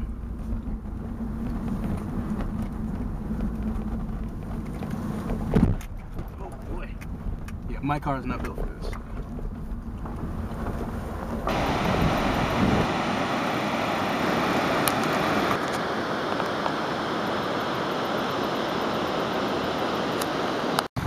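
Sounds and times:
car driving rough trail: 0.0s - 17.9s
wind on microphone: 8.9s - 20.9s
river water rushing: 11.4s - 20.9s.

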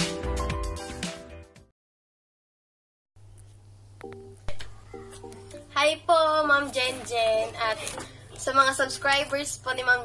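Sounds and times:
background music: 0.0s - 1.7s, 4.0s - 7.9s.

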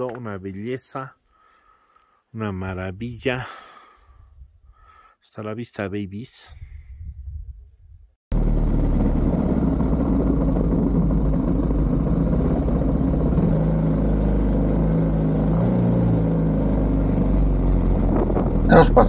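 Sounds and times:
motorcycle engine running: 8.3s - 19.0s.

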